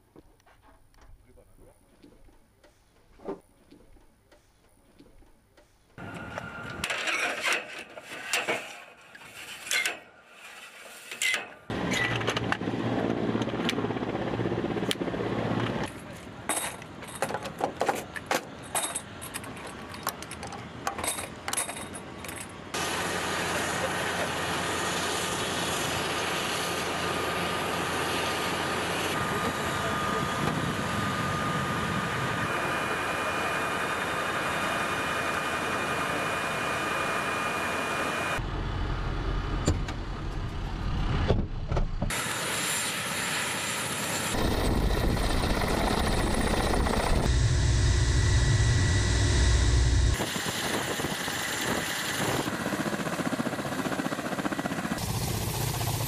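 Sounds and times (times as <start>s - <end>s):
turbine engines whining: 6.0s - 8.0s, 11.3s - 56.0s
helicopter rotors rumbling: 11.7s - 38.4s, 42.1s - 56.0s.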